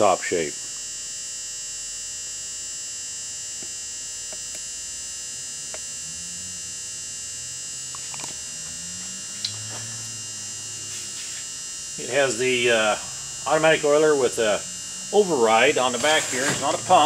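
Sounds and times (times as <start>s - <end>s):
electrical hum with whine: 0.0s - 17.0s.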